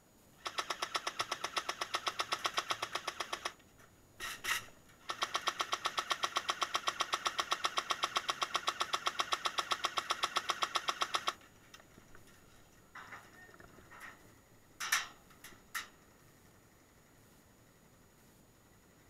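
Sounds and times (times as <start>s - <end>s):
airsoft gun firing full-auto: 0.4s - 3.6s, 5.1s - 11.4s.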